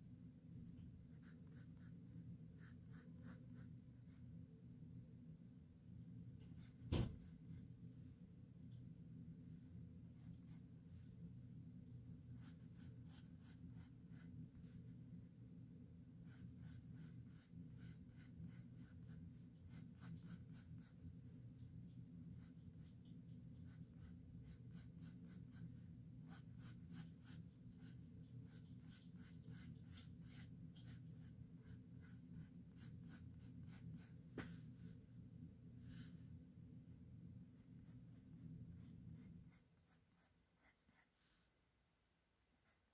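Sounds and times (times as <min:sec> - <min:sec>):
steady low hum: 0:00.0 - 0:42.9
pencil scratching on paper: 0:01.1 - 0:04.4, 0:06.4 - 0:07.7, 0:10.1 - 0:11.1, 0:12.3 - 0:15.0, 0:16.2 - 0:21.2, 0:22.2 - 0:35.0, 0:37.4 - 0:41.6, 0:42.6 - 0:42.9.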